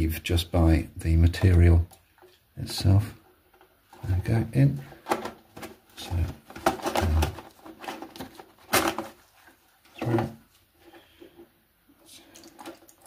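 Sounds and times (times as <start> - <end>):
plastic parts clicking and knocking: 1.2 - 9.2.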